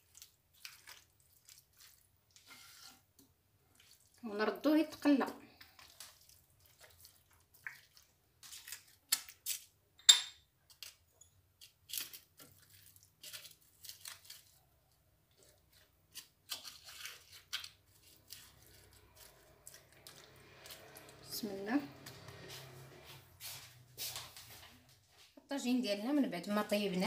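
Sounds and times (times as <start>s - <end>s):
wet squishes of meat: 0.0s - 9.8s, 11.7s - 21.3s.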